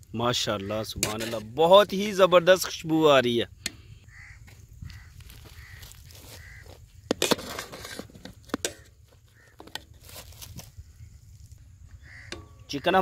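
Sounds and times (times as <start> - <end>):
metal utensil scraping metal pot: 0.8 - 1.8, 7.1 - 8.9
crows cawing: 4.0 - 6.8, 8.6 - 9.8, 11.9 - 13.0.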